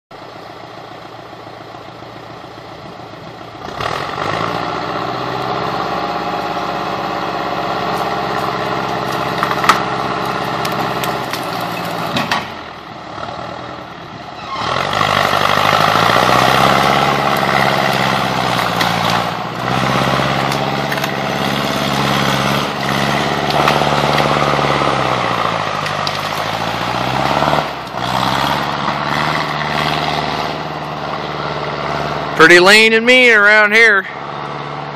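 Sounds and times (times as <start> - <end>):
diesel engine running under load: 0.1 - 34.9.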